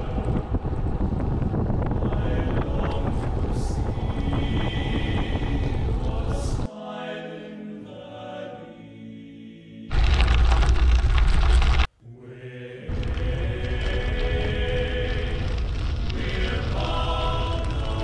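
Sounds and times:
wind buffeting microphone: 0.0 - 6.7, 12.9 - 18.0
music with chanting voices: 0.0 - 9.9, 12.0 - 18.0.

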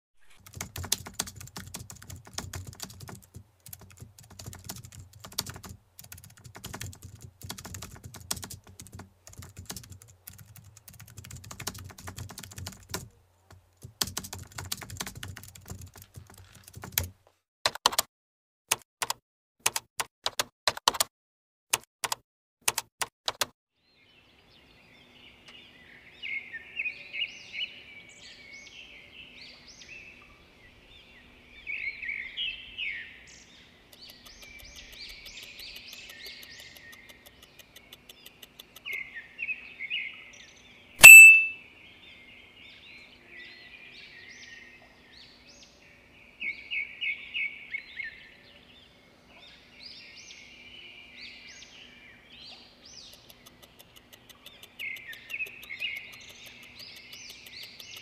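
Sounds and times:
keyboard key clicks: 0.4 - 13.1, 13.8 - 17.1, 17.7 - 18.1, 18.7 - 21.1, 21.7 - 23.5, 41.0 - 41.5
birds chirping: 23.9 - 58.0.

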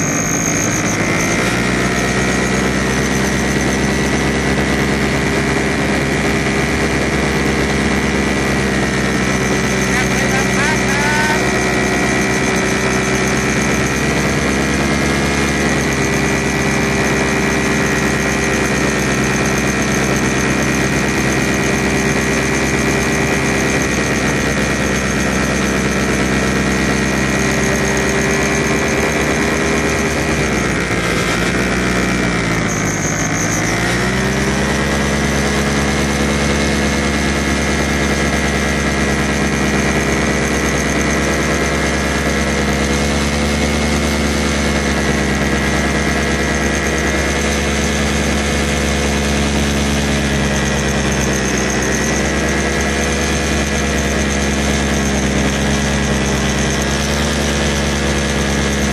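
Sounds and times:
paramotor engine and propeller: 0.0 - 58.9.

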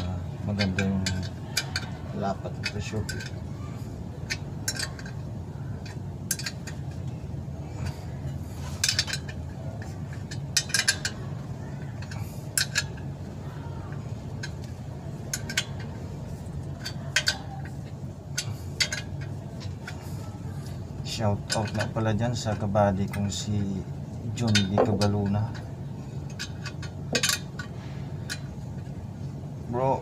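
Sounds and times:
wrench clinking on bolts: 0.5 - 3.4, 4.2 - 5.2, 5.8 - 7.1, 8.8 - 13.0, 13.9 - 23.5, 24.4 - 28.9.

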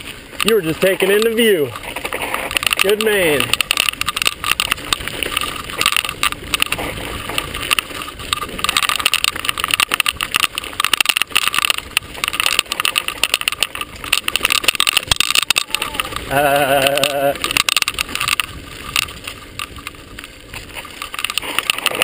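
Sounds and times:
bike clattering over dirt trail: 0.0 - 22.0
tyre and riding noise: 0.0 - 22.0.

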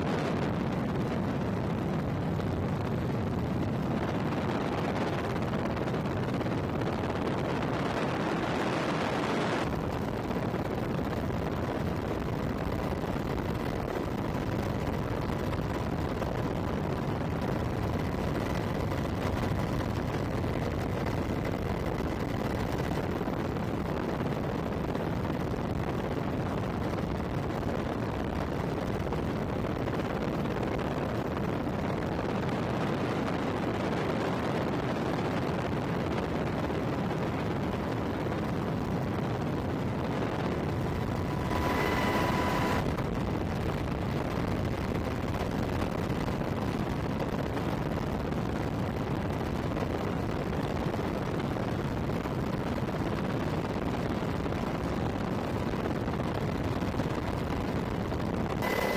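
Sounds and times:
helicopter rotors and turbine roar: 0.0 - 49.0
short beep: 41.2 - 42.8, 58.6 - 58.9.

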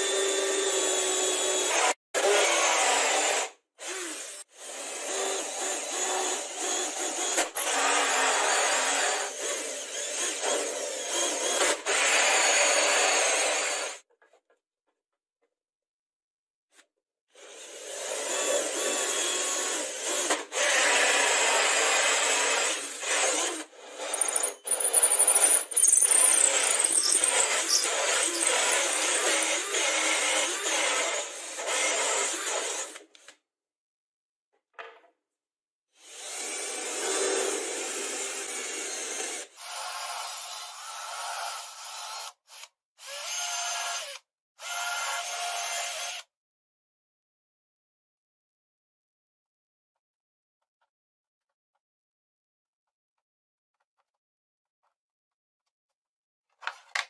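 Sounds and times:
drill cutting through wood: 0.0 - 14.0, 17.4 - 33.1, 36.0 - 46.3.

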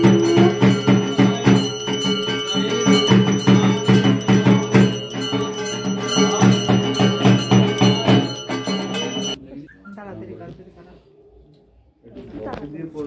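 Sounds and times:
hand bell ringing rapidly: 0.0 - 9.4
music with regular beat: 0.0 - 9.4.

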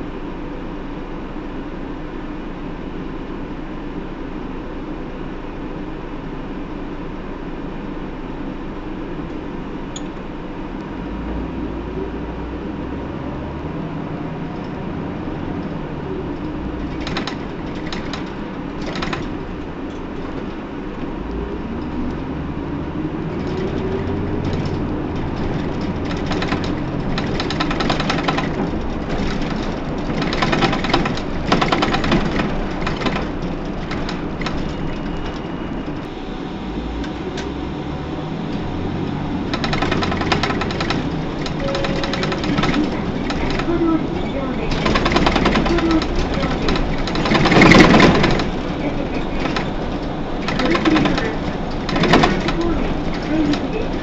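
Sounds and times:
diesel bus engine: 0.0 - 54.0
rapid rattling: 14.5 - 21.1, 23.1 - 36.0, 39.4 - 54.0.

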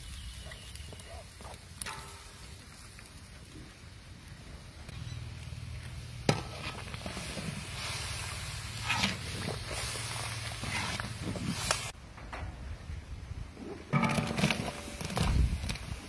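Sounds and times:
ladle stirring and scraping pot: 6.3 - 12.0.

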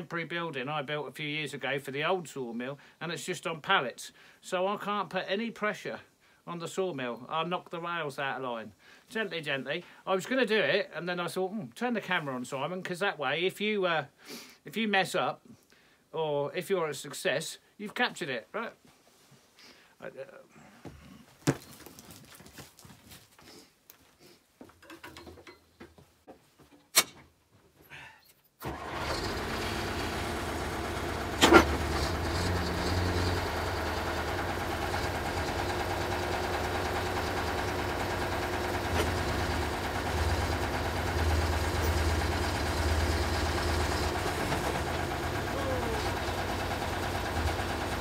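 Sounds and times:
loader engine starting and idling: 28.6 - 48.0.

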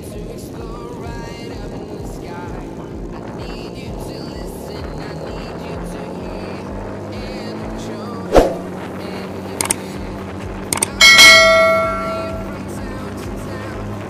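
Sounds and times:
motorcycle engine running: 0.0 - 14.0
short clicks: 9.6 - 9.8, 10.7 - 11.0
bright bell ding: 10.8 - 12.6.

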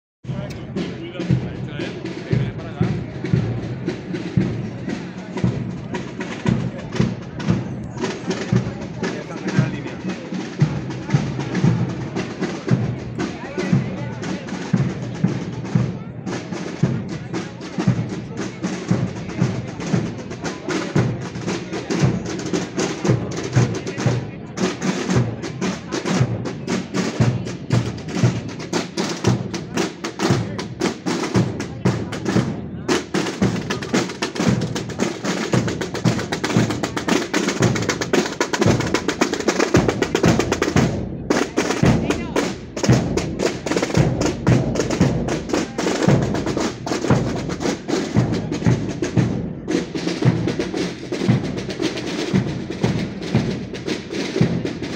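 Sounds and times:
snare drum rattle: 17.7 - 54.9.

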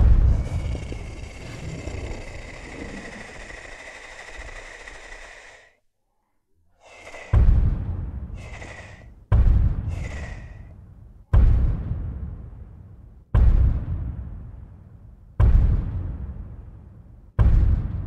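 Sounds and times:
deep dinosaur roar: 0.0 - 5.8, 8.4 - 9.0.

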